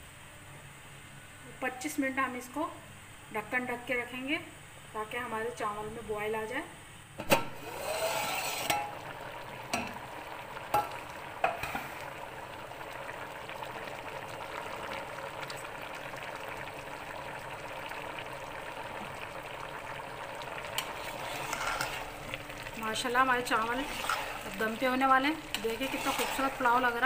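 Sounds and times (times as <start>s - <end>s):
rice boiling in pot: 7.2s - 27.0s.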